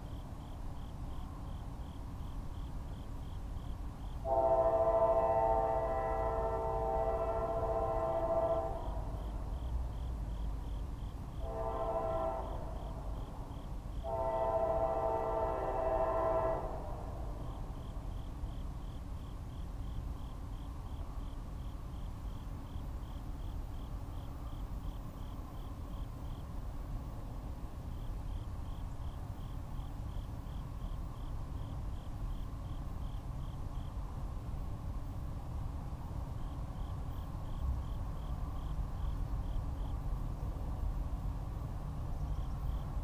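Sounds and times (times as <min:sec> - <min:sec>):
locomotive air horn blasts: 0:04.2 - 0:09.1, 0:11.4 - 0:12.8, 0:14.0 - 0:16.9.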